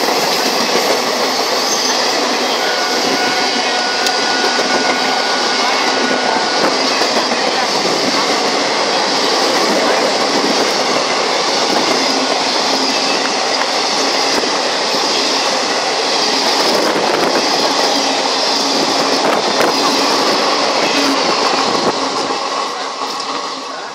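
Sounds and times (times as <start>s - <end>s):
train wheels rushing on rails: 0.0s - 23.9s
sharp rail clicks: 6.6s - 23.6s.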